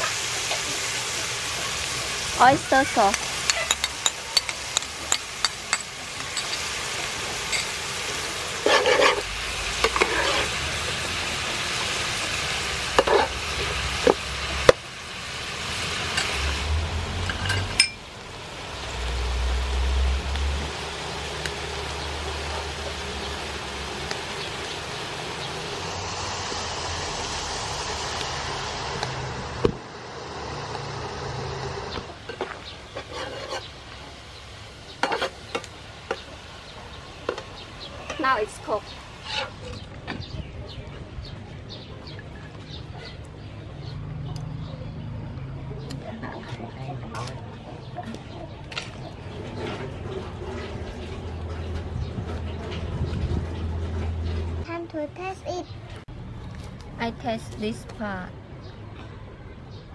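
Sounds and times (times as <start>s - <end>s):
food sizzling in a hot pan: 0.0s - 39.6s
metal spatula scraping a pan: 8.5s - 10.6s, 13.0s - 13.4s, 32.2s - 33.8s, 35.0s - 35.4s, 39.2s - 39.6s.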